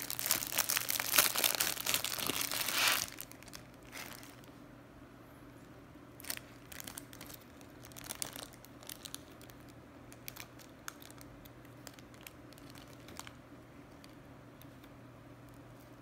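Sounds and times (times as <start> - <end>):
plastic wrapper crinkling: 0.0 - 4.6, 6.2 - 13.4
low steady hum: 0.0 - 16.0.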